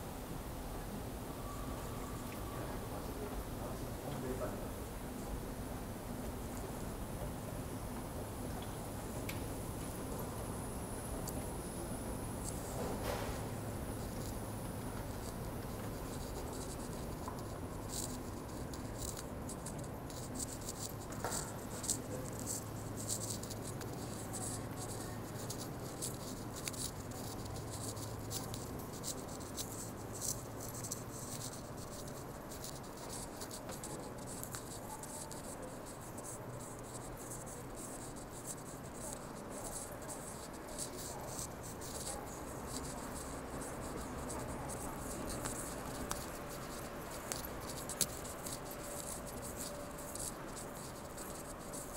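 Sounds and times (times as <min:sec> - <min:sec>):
steady low hum: 0:00.0 - 0:51.9
footsteps on a tiled floor: 0:12.7 - 0:13.6.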